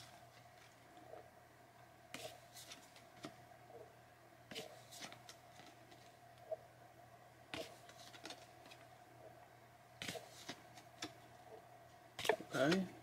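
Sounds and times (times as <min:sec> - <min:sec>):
trading cards rustling: 0:02.2 - 0:03.4, 0:04.5 - 0:06.2, 0:07.6 - 0:08.9, 0:10.0 - 0:11.3
low hum: 0:05.4 - 0:07.6.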